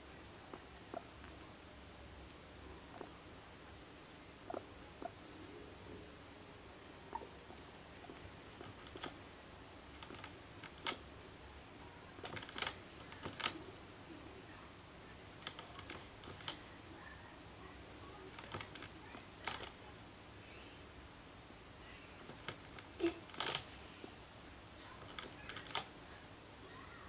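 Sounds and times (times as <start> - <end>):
guinea pig drinking from water bottle: 2.9 - 3.2, 18.3 - 19.8.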